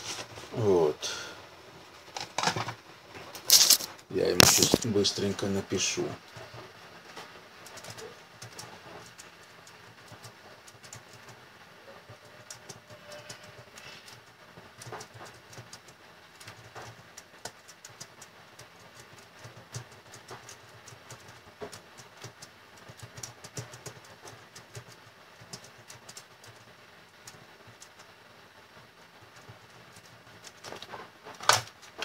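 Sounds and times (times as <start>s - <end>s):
computer keyboard typing: 7.6s - 11.4s, 12.0s - 28.2s, 29.2s - 32.0s.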